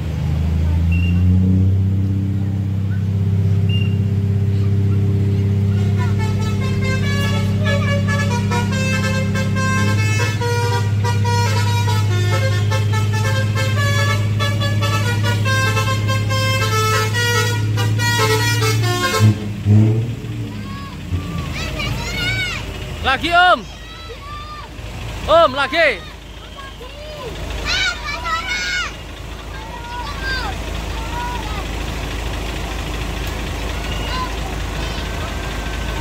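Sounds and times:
multi-tone bus horn melody: 5.6s - 24.1s
loud horn blasts: 5.8s - 23.6s.

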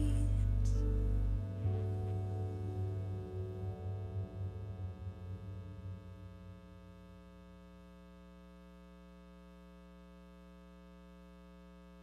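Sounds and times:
music: 0.0s - 7.3s
faint steady hum: 0.0s - 12.0s.

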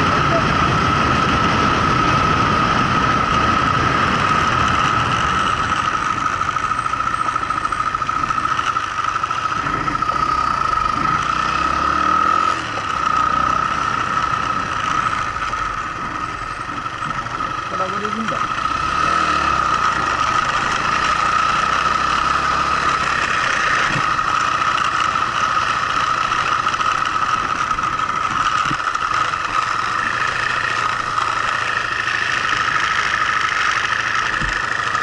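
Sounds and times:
high whine: 0.0s - 35.0s
motorcycle engine running: 0.0s - 35.0s.

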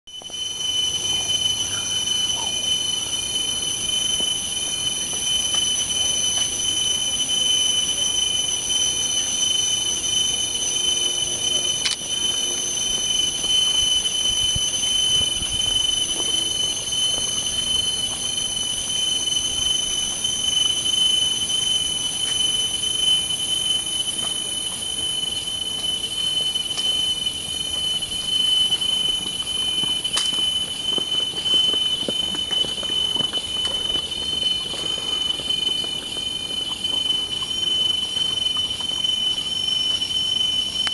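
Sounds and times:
cicadas calling in chorus: 0.1s - 40.9s.

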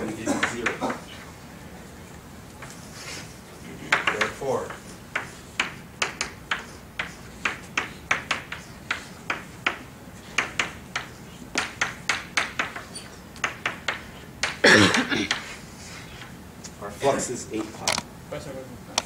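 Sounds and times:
chalk tapping on blackboard: 0.4s - 0.9s, 3.9s - 15.6s.

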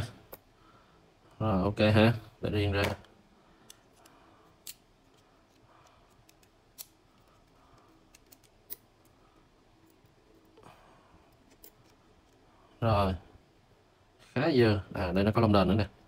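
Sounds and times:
small metal parts clicking: 6.1s - 9.1s.

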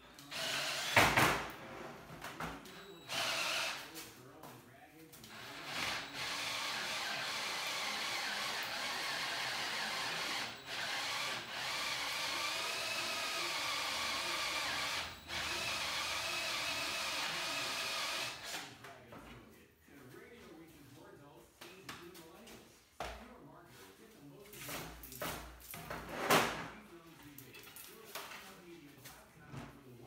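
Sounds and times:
cordless drill boring into plastic: 0.2s - 1.1s, 3.0s - 4.0s, 5.3s - 18.7s.

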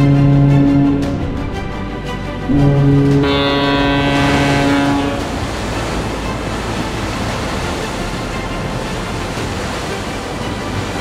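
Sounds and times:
background music: 0.0s - 11.0s
stormy sea rushing: 0.0s - 11.0s
rain: 3.2s - 11.0s.

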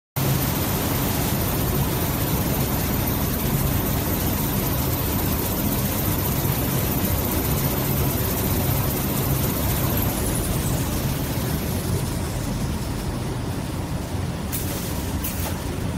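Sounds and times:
low mechanical hum: 0.2s - 15.9s
rushing machine noise: 0.2s - 15.9s.

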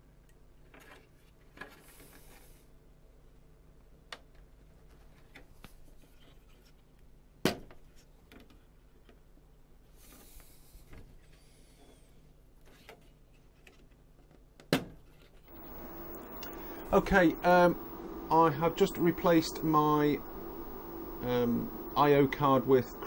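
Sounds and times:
light rubbing and ticks: 15.5s - 23.0s.

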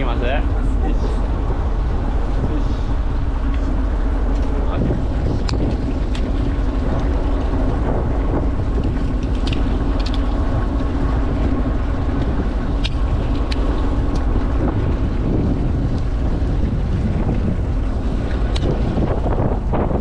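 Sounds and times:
boat engine idling: 0.0s - 20.0s.

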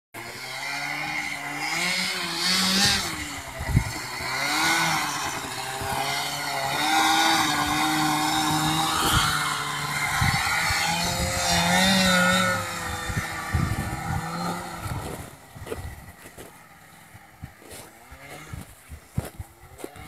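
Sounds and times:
snowmobile engine revving: 0.2s - 20.0s.

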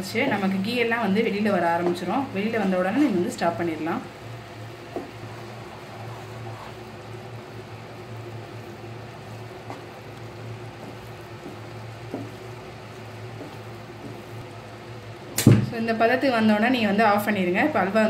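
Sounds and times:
steady low hum: 0.0s - 18.0s
wooden spatula stirring in pan: 4.4s - 14.9s.

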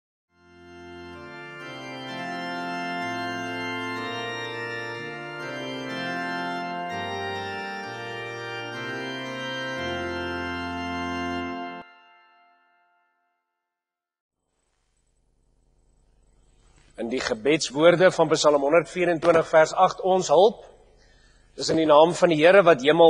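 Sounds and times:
organ playing slow chords: 0.3s - 13.4s, 15.9s - 23.0s.

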